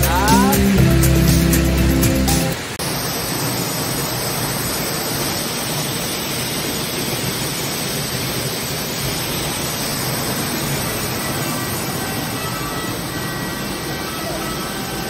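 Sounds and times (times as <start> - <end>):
waterfall roaring: 0.0 - 15.0.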